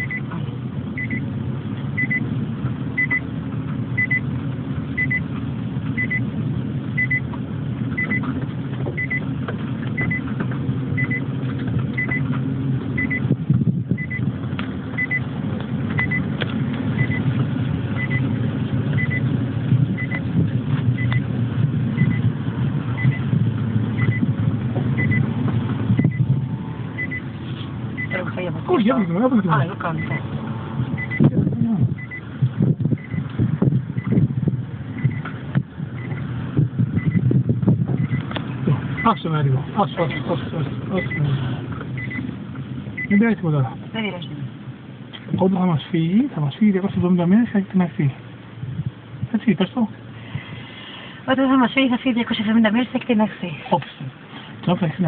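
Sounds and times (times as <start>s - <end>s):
short electronic beeps: 0.0s - 0.3s, 1.0s - 1.2s, 2.0s - 2.2s, 3.0s - 3.2s, 4.0s - 4.2s, 5.0s - 5.2s, 6.0s - 6.3s, 7.0s - 7.3s, 8.0s - 8.3s, 9.0s - 9.2s, 10.0s - 10.3s, 11.0s - 11.3s, 12.0s - 12.2s, 13.0s - 13.3s, 14.0s - 14.2s, 15.0s - 15.3s, 16.0s - 16.3s, 17.0s - 17.2s, 18.0s - 18.3s, 19.0s - 19.2s, 20.0s - 20.3s, 21.0s - 21.2s, 22.0s - 22.2s, 23.0s - 23.3s, 24.0s - 24.3s, 25.0s - 25.3s, 26.0s - 26.3s, 27.0s - 27.3s, 28.0s - 28.4s, 30.0s - 30.3s, 31.0s - 31.3s, 32.0s - 32.2s, 33.0s - 33.3s, 34.0s - 34.2s, 34.9s - 35.2s, 36.0s - 36.3s, 37.0s - 37.2s, 38.0s - 38.2s, 39.0s - 39.2s, 40.0s - 40.3s, 41.0s - 41.3s, 42.0s - 42.3s, 43.0s - 43.2s
car engine and road rumble: 0.0s - 55.0s.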